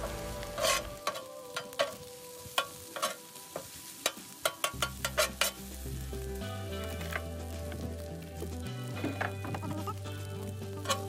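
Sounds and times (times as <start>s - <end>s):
metal spatula scraping griddle: 0.0s - 5.8s
rice sizzling: 0.0s - 11.0s.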